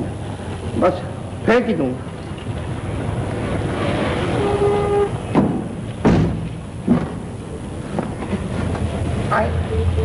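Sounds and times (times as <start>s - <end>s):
short horn toot: 4.3s - 5.3s
dull thuds: 5.4s - 7.3s.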